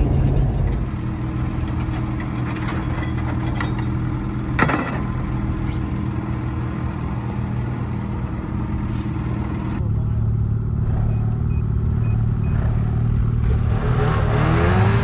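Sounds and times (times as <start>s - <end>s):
snowmobile engines idling: 0.8s - 10.3s.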